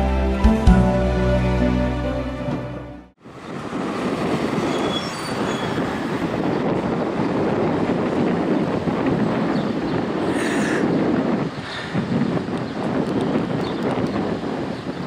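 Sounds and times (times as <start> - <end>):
music: 0.0 - 3.2.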